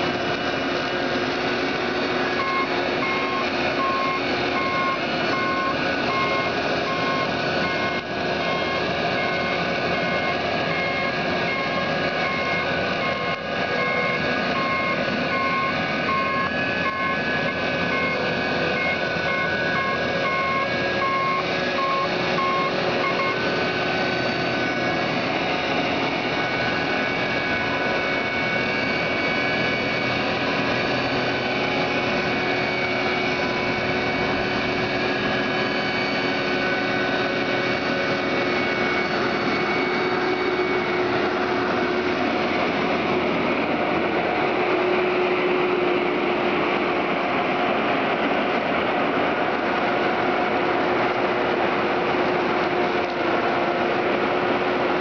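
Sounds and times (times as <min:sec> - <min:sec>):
flail mower cutting reeds: 0:00.0 - 0:46.6
tractor engine running: 0:00.0 - 0:55.0
reversing alarm beeping: 0:01.3 - 0:43.7.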